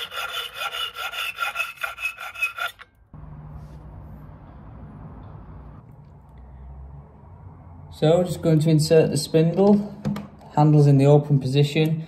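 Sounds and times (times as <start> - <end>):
hacksaw cutting metal: 0.0 - 3.0.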